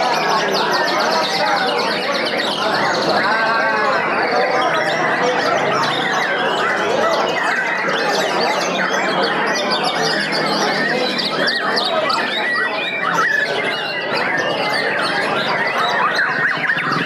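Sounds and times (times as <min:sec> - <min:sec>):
chorus of songbirds singing: 0:00.0 - 0:17.0.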